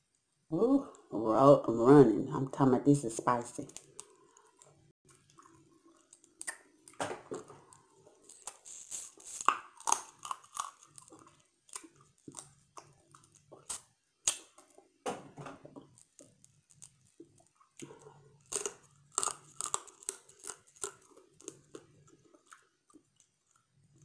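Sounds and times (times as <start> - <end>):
crab shell crunching: 3.6 - 14.8, 15.8 - 24.0
chewing and biting: 3.8 - 14.8, 15.9 - 24.0.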